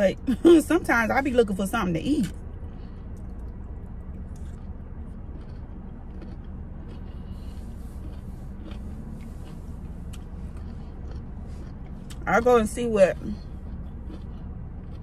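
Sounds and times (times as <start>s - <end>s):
car cabin rumble and hum: 0.0s - 15.0s
faint chewing clicks: 2.2s - 12.3s, 13.3s - 15.0s.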